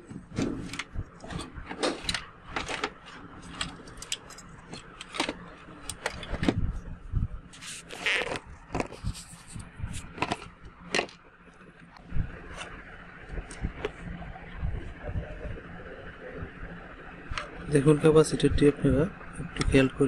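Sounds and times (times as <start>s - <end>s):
cables and connectors rattling: 0.0s - 6.8s, 7.5s - 11.9s.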